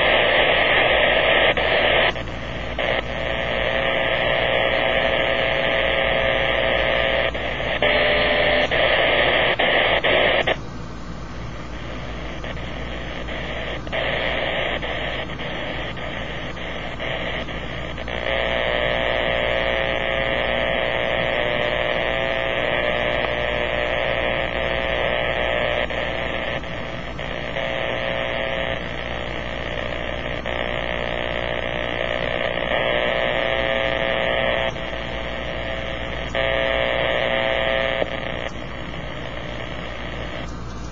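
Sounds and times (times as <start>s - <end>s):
radio static buzz: 0.0s - 40.9s.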